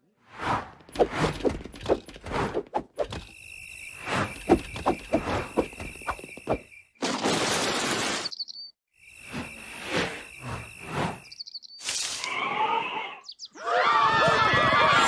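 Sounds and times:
crickets chirping: 0:03.0 - 0:07.0, 0:08.3 - 0:12.4
bird tweet: 0:08.2 - 0:08.8, 0:10.3 - 0:11.9, 0:13.0 - 0:13.6.

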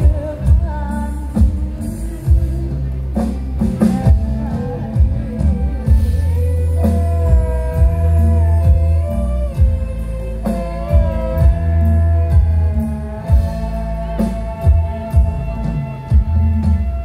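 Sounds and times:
loud bass-heavy electronic music: 0:03.7 - 0:17.0.

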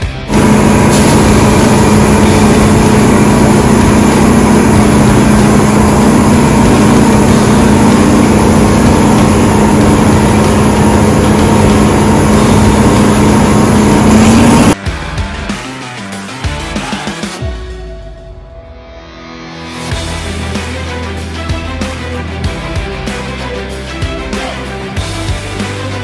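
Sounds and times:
diesel machinery droning: 0:00.0 - 0:14.8.

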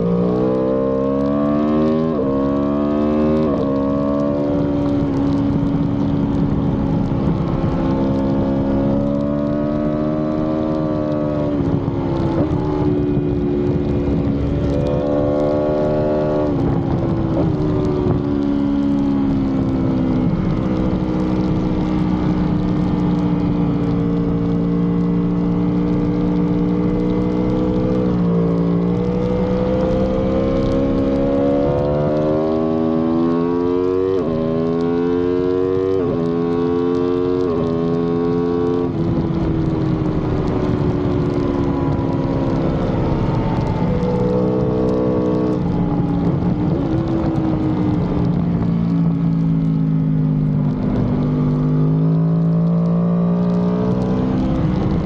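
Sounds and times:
wind rush: 0:53.8 - 0:55.0.

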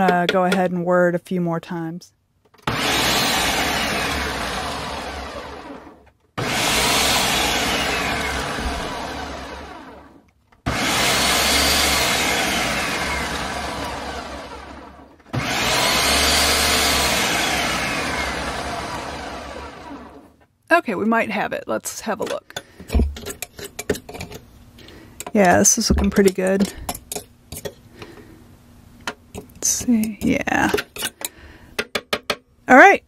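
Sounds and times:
food processor whirring: 0:02.6 - 0:20.4.

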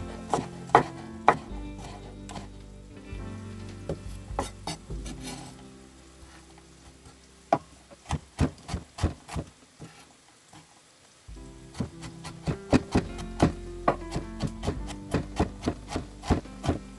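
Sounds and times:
background music: 0:00.0 - 0:08.4, 0:11.3 - 0:16.9
knife chopping on wooden board: 0:00.3 - 0:02.0, 0:11.7 - 0:16.8.

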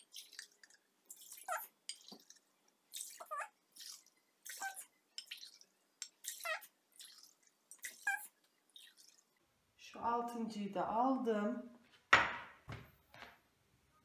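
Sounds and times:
milk pouring and splashing: 0:00.0 - 0:09.4.

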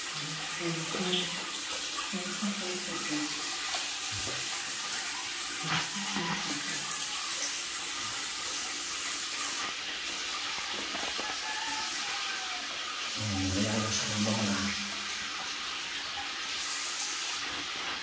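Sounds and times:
water running from a tap: 0:00.0 - 0:18.0.

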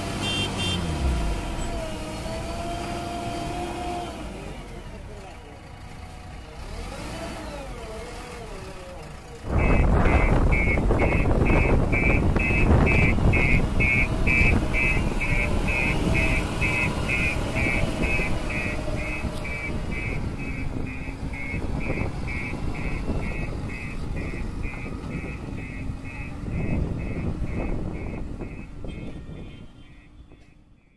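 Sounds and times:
diesel engine running: 0:00.0 - 0:30.8
reversing alarm beeping: 0:09.6 - 0:29.1.

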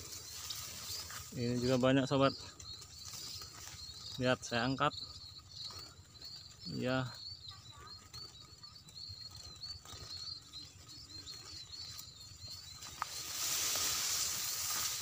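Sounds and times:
birds chirping: 0:00.0 - 0:15.0
loud hiss: 0:13.1 - 0:15.0.

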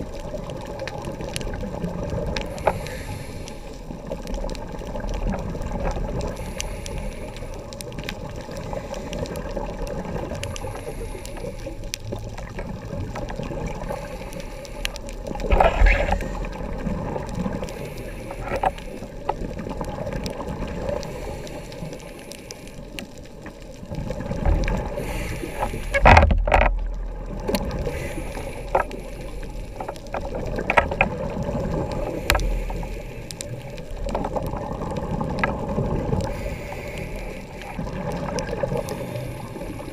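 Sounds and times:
exhaled bubbles underwater: 0:00.0 - 0:39.9
faint clicks: 0:00.1 - 0:39.9
diver regulator breathing: 0:02.4 - 0:04.4, 0:06.2 - 0:09.7, 0:10.4 - 0:11.9, 0:13.7 - 0:16.8, 0:17.4 - 0:19.4, 0:20.8 - 0:23.2, 0:24.7 - 0:26.7, 0:27.4 - 0:34.0, 0:35.4 - 0:39.9.

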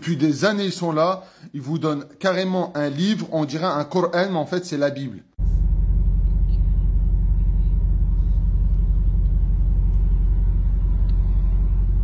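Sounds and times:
car engine rumble inside cabin: 0:05.4 - 0:12.0.

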